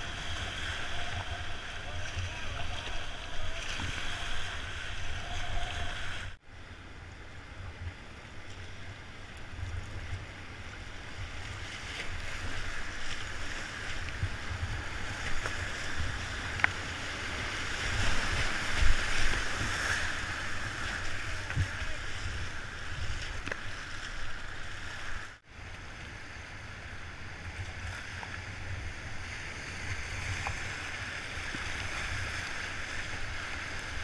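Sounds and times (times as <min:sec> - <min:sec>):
whitewater rapids rushing: 0:00.0 - 0:06.4
wind rumbling on microphone: 0:00.0 - 0:34.0.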